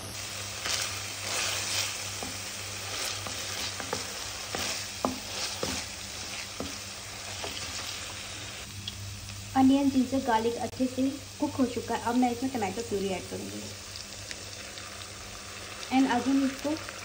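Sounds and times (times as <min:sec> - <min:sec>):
paste sizzling in oil: 0:00.0 - 0:10.6, 0:11.4 - 0:17.0
spatula scraping pan: 0:00.6 - 0:08.2.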